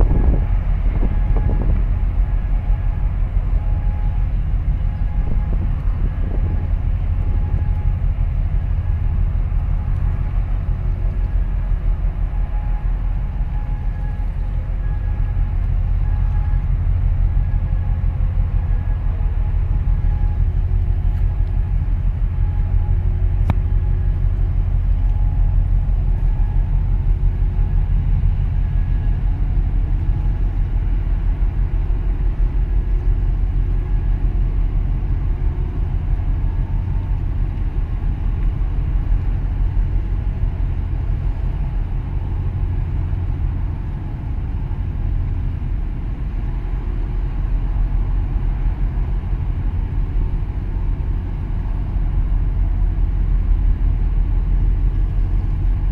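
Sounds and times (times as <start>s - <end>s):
faint ship engine hum: 0.0s - 55.9s
wind buffeting the microphone: 0.0s - 55.9s.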